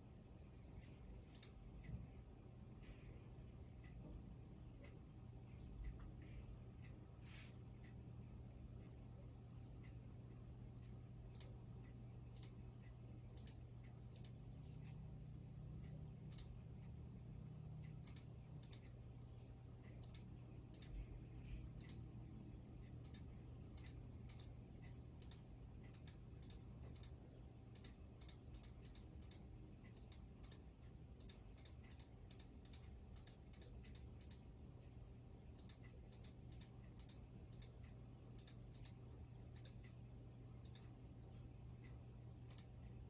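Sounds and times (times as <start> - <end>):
faint low hum: 0.0 - 43.0
computer mouse clicking: 0.8 - 2.0, 10.8 - 12.6, 13.3 - 15.0, 15.8 - 17.0, 17.8 - 19.0, 19.8 - 22.1, 22.8 - 40.0, 40.6 - 41.0, 41.6 - 43.0.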